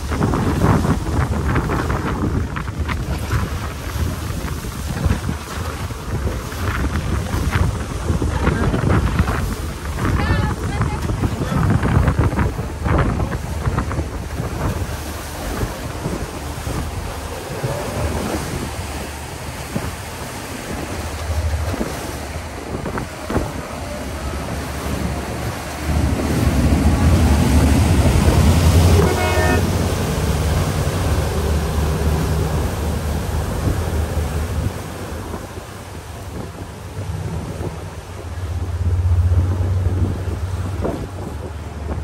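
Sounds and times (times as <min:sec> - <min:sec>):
boat engine rumble: 0:00.0 - 0:42.0
rushing water: 0:00.0 - 0:42.0
wind buffeting microphone: 0:00.0 - 0:42.0
horn toot: 0:28.7 - 0:29.8.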